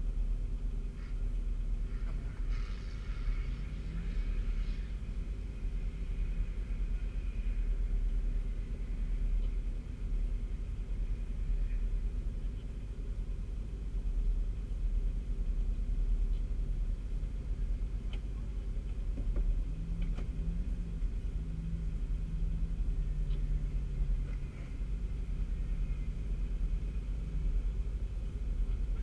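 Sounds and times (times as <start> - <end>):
engine idling rumble: 0.0 - 29.0.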